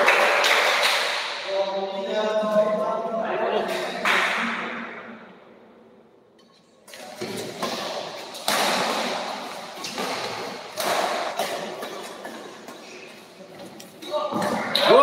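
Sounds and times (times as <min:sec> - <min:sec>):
badminton rackets hitting shuttlecock: 0:07.0 - 0:13.0.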